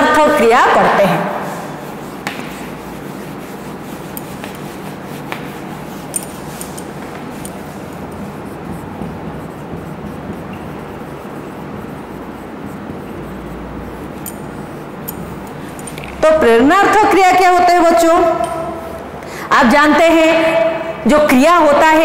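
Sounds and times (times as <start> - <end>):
duster wiping whiteboard: 0.0 - 19.1
steady background hiss: 0.0 - 22.0
marker writing on board: 0.5 - 16.3.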